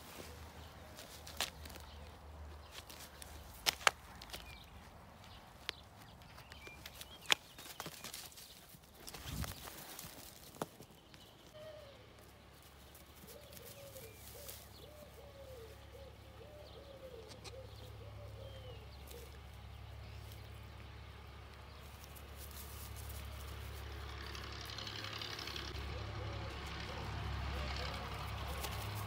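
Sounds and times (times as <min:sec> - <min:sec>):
small birds chirping: 0:00.0 - 0:29.0
pigeon cooing: 0:11.6 - 0:12.0, 0:13.2 - 0:19.3, 0:25.8 - 0:29.0.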